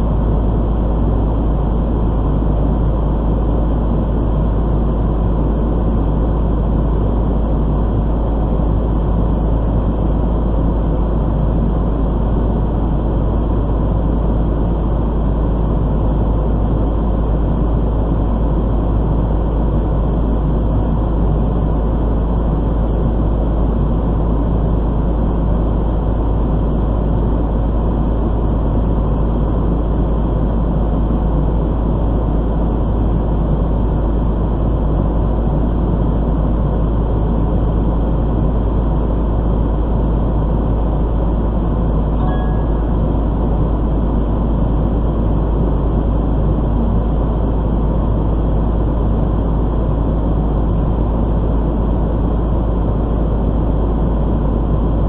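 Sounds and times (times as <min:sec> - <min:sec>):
diesel engine low drone: 0:00.0 - 0:55.0
brief faint tone: 0:42.2 - 0:43.0.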